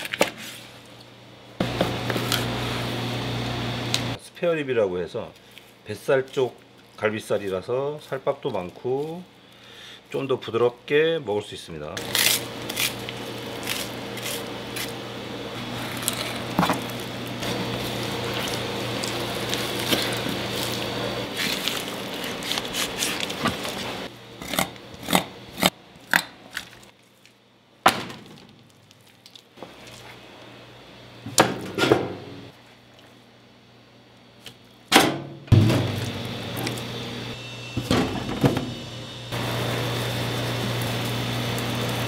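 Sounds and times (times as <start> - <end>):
machine hum: 1.3 - 4.2, 12.0 - 26.0, 35.2 - 42.0.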